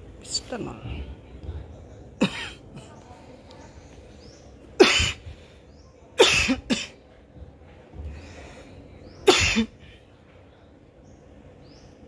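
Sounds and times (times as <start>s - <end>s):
loud coughs: 2.2s - 3.0s, 4.8s - 5.3s, 6.2s - 7.0s, 9.2s - 9.8s.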